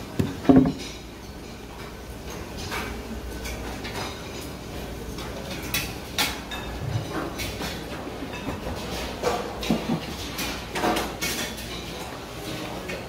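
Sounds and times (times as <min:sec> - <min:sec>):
wooden lid knocking down: 0:00.2 - 0:00.8.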